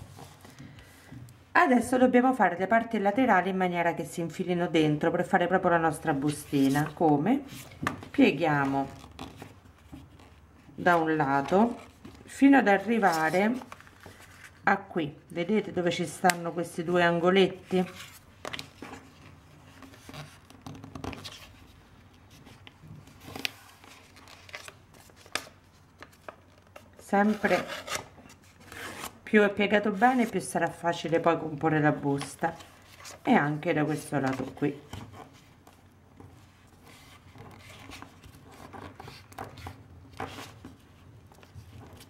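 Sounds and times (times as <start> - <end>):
paper rustling and rubbing: 8.6 - 14.6, 17.6 - 31.2, 32.1 - 42.0
paper rustling and sliding: 12.8 - 14.6
paper crinkling: 17.8 - 29.2.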